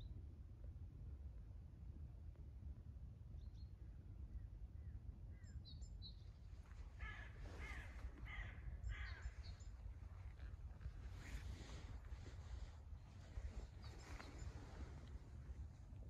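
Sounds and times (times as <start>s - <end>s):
low background rumble: 0.0s - 16.0s
crow cawing: 6.9s - 9.6s.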